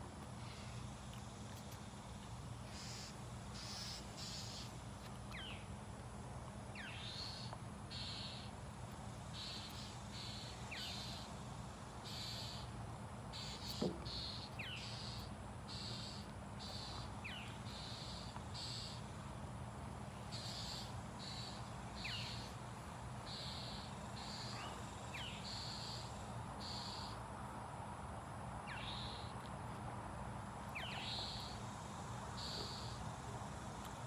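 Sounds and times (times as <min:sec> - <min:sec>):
insect buzzing pulses: 0:02.6 - 0:04.8, 0:06.8 - 0:08.5, 0:09.2 - 0:19.4, 0:20.1 - 0:27.2, 0:30.8 - 0:33.7.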